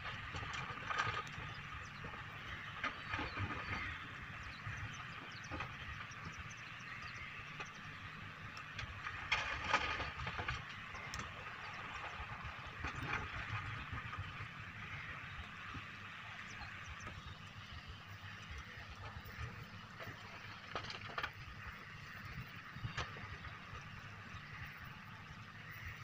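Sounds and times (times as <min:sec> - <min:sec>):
excavator diesel engine running: 0:00.0 - 0:26.0
metal clatter: 0:08.8 - 0:14.3.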